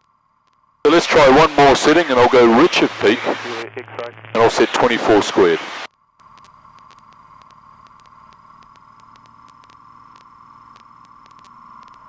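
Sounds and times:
faint irregular ticks: 0.0s - 0.8s, 5.9s - 12.0s
aircraft engine drone: 0.9s - 5.9s
intercom hiss: 0.9s - 5.9s.

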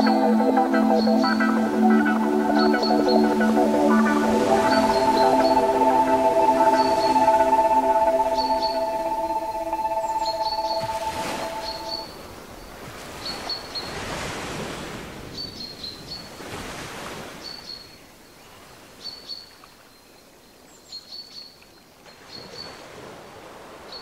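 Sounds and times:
waves washing: 0.0s - 15.4s.

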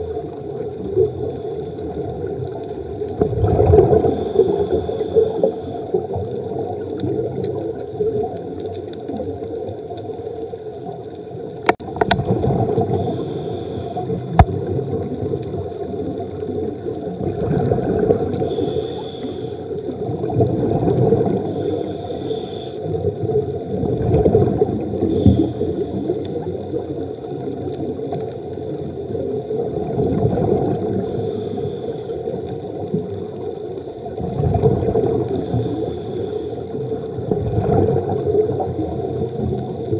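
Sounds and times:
scuba breathing underwater: 3.4s - 6.2s, 12.2s - 14.5s, 17.4s - 23.4s, 24.2s - 27.4s, 30.1s - 32.9s, 34.3s - 39.9s.

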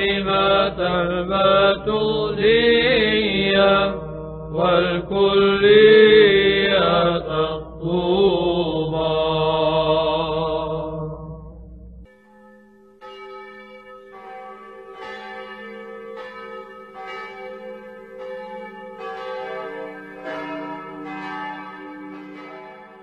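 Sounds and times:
church bells ringing: 12.1s - 23.0s.

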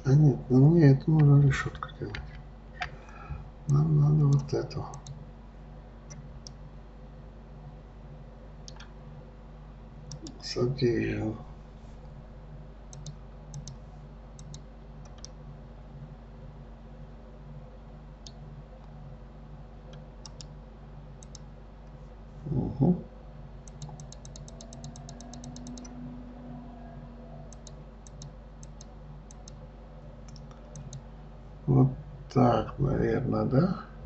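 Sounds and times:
steady low hum: 0.0s - 34.0s
mouse and keyboard clicks: 8.7s - 8.9s, 12.9s - 13.8s, 14.4s - 15.4s, 23.7s - 26.0s, 27.5s - 29.6s, 30.3s - 31.0s.

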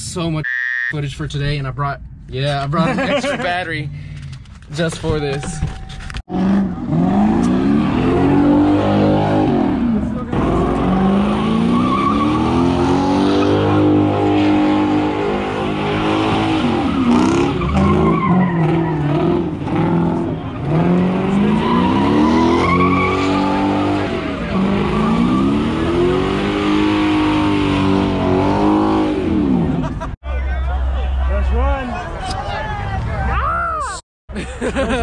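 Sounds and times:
car engine revving: 6.2s - 30.0s
tyres squealing: 21.4s - 25.8s.

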